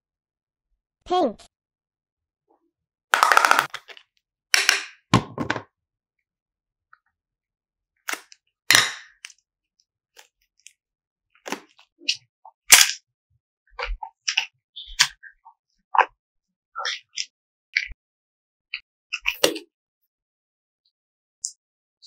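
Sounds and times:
plastic box popping and crackling: 0:03.2 - 0:04.0, 0:04.6 - 0:05.7.

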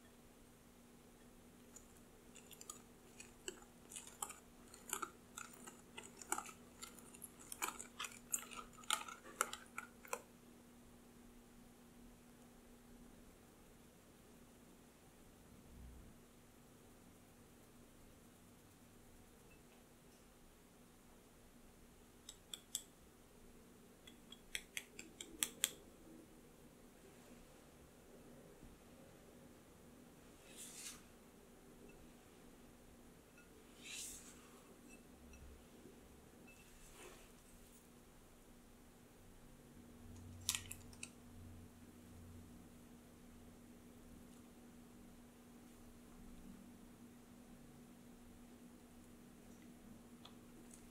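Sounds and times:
whisk beating batter in glass bowl: 0:01.7 - 0:10.2.

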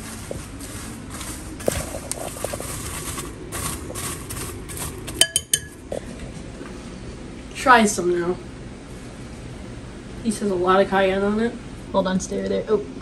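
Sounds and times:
popcorn rustling and crunching: 0:00.0 - 0:06.7.

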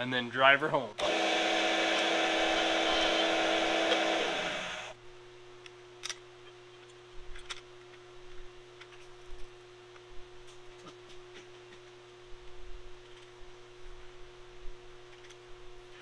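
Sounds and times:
drill boring through steel: 0:01.0 - 0:04.9.

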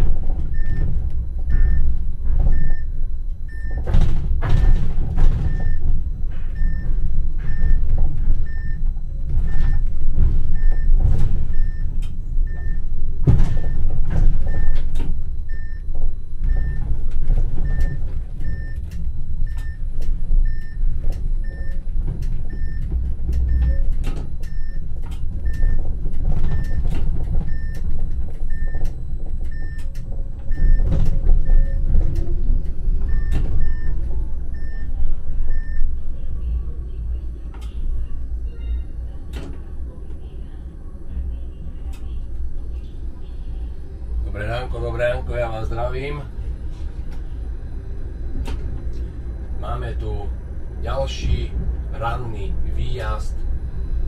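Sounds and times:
tram rumbling over rails: 0:00.0 - 0:54.0.

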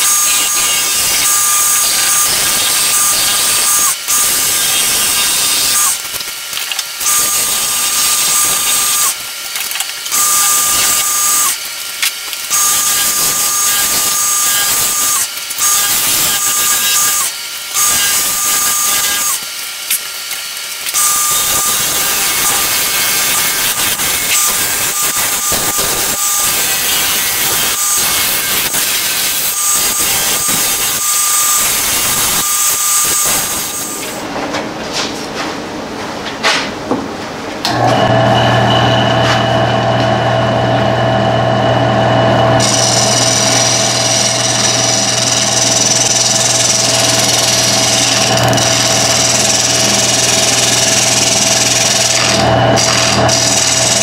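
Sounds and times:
wood lathe whining: 0:00.0 - 0:11.8, 0:12.4 - 0:34.2, 0:37.6 - 0:54.0
tool scraping spinning wood: 0:42.6 - 0:54.0.

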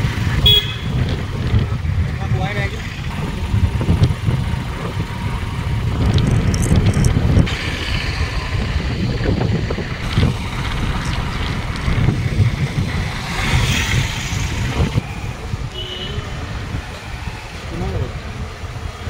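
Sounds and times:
vehicle running noise: 0:00.0 - 0:19.0
wind buffeting microphone: 0:00.0 - 0:19.0.

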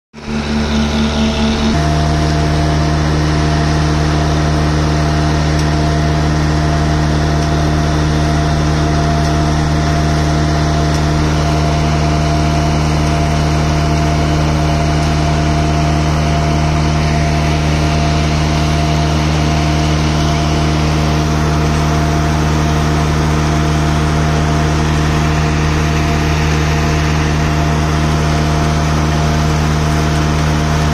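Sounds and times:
concrete mixer drum turning: 0:00.1 - 0:30.9
diesel engine running steadily: 0:00.1 - 0:30.9.

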